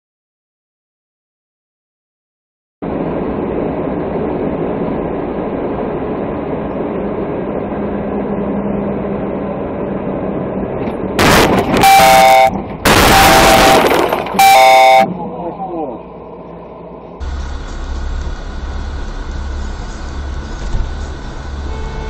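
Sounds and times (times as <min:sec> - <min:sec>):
vehicle engine and road noise: 0:02.8 - 0:22.0
vehicle horn blaring: 0:11.2 - 0:15.2, 0:21.5 - 0:22.0.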